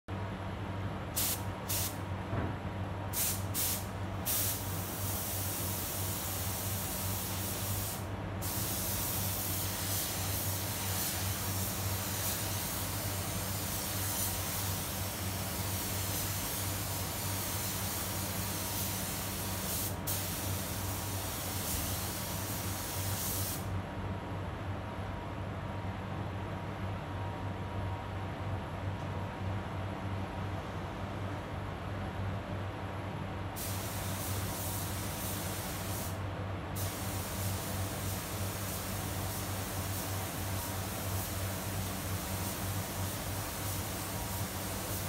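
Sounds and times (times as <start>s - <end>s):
spray gun hissing: 1.2s - 2.0s, 3.2s - 23.7s, 33.6s - 36.2s, 36.8s - 45.0s.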